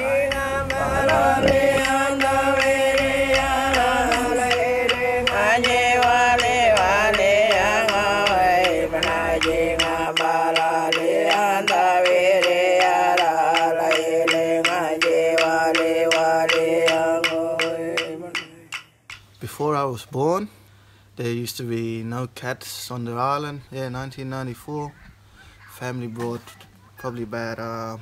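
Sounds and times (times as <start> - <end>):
person singing over a beat: 0.0 - 18.9.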